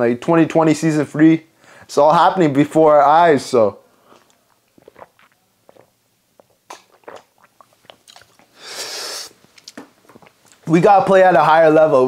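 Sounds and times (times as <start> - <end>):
person swallowing: 4.0 - 10.6.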